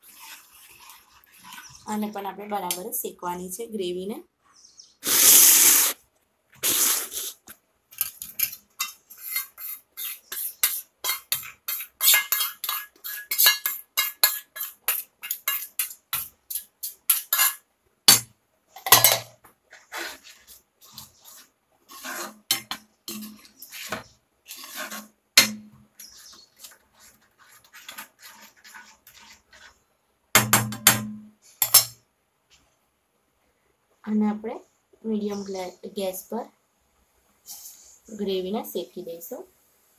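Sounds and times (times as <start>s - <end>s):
spoon clinking and scraping pan: 8.0s - 29.8s, 30.4s - 32.0s
spoon knocking against pan: 30.4s - 32.0s.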